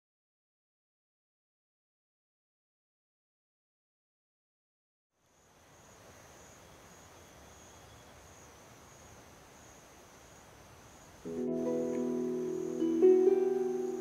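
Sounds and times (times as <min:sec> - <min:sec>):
insect chorus buzzing: 0:05.2 - 0:14.0
plucked-string music: 0:11.3 - 0:14.0.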